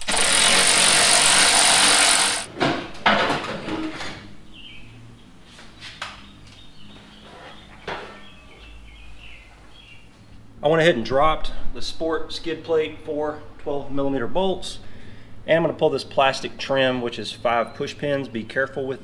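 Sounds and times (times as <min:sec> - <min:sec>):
cordless power tool running: 0:00.0 - 0:02.5.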